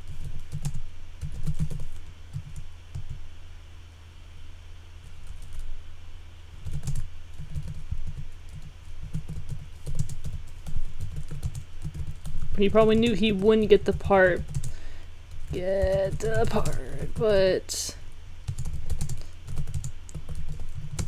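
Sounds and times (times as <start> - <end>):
typing on computer keyboard: 0.0 - 3.2, 6.6 - 14.7, 15.3 - 17.3, 18.5 - 21.0
steady low hum: 0.0 - 21.0.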